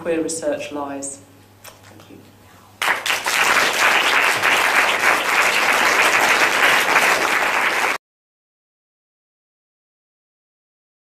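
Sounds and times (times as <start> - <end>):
audience applauding: 2.8 - 8.0.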